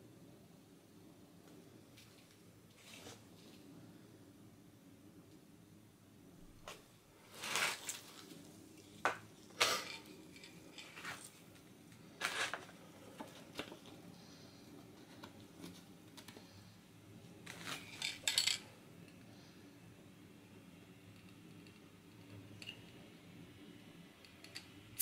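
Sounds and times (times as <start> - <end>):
paper rustling and scraping: 7.2 - 8.4, 12.2 - 13.8.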